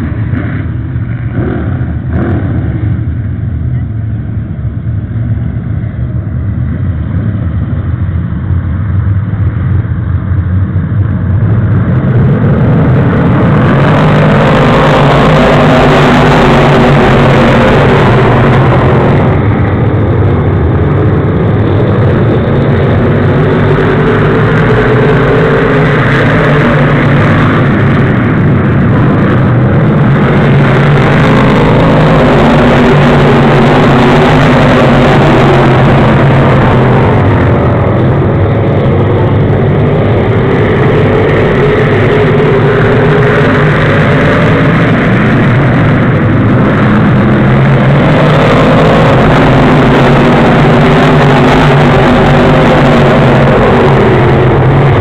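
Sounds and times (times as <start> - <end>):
race car engines: 0.0 - 55.0.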